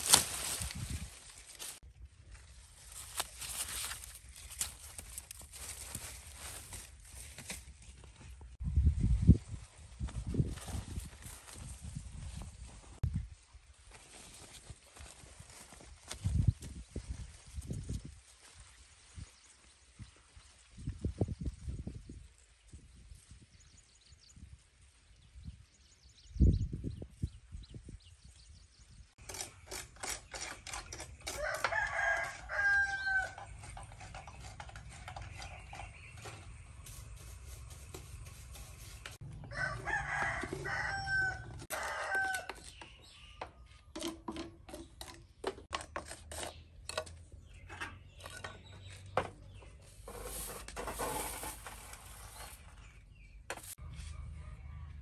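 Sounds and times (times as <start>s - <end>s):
rooster crowing: 31.4s - 33.4s, 39.4s - 42.5s, 53.8s - 55.0s.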